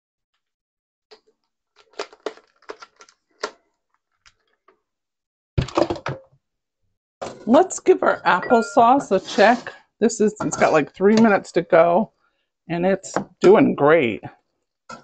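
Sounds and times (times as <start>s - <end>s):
kitchen utensils clicking and knocking: 10.4s - 11.6s.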